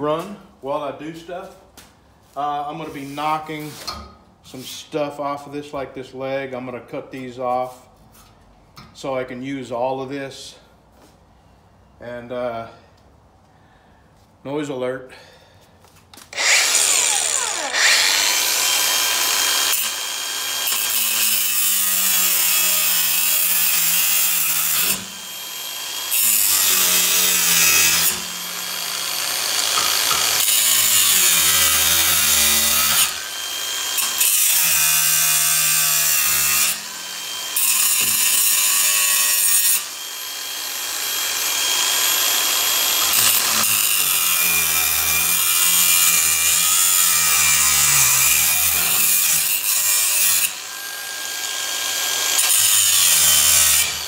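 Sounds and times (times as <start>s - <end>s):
angle grinder cutting steel: 16.3s - 54.0s.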